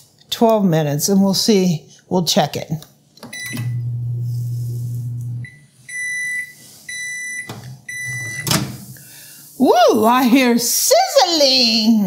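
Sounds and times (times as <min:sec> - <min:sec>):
oven humming: 0:03.4 - 0:09.0
high beeps: 0:05.4 - 0:08.5.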